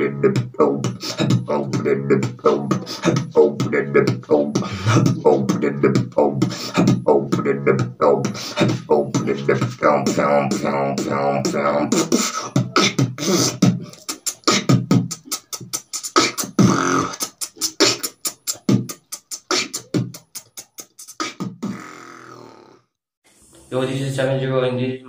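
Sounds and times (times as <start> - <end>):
person beatboxing: 0.0 - 22.6.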